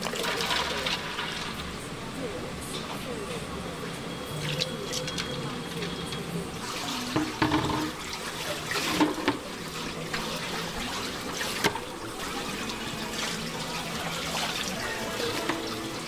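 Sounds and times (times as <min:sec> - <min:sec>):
water running and splashing: 0:06.5 - 0:16.0.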